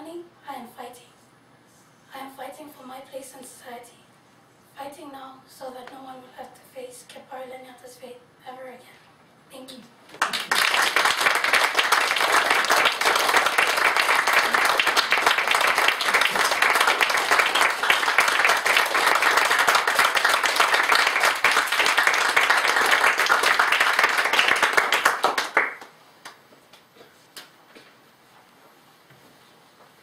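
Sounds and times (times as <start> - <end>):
audience applauding: 10.2 - 25.9.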